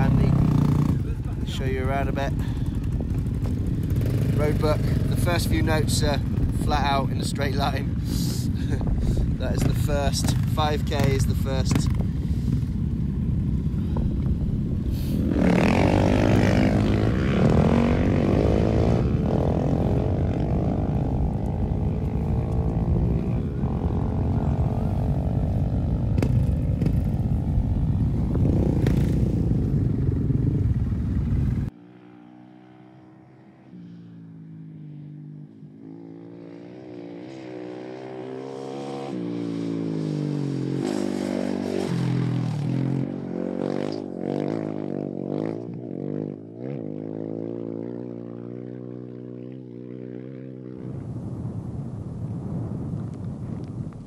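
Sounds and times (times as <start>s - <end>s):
motorcycle engines revving: 0.0s - 51.1s
motorcycle riding past: 0.0s - 51.5s
wind noise on microphone: 5.7s - 31.7s, 50.8s - 54.0s.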